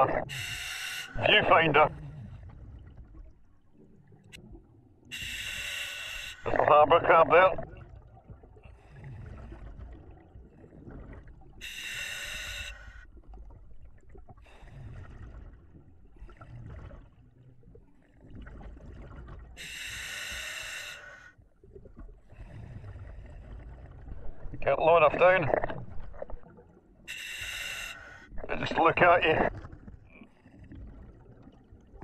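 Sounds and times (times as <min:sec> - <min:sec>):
regulator inhalations: 0:05.1 - 0:06.4, 0:11.6 - 0:12.9, 0:19.6 - 0:21.2, 0:27.1 - 0:28.2.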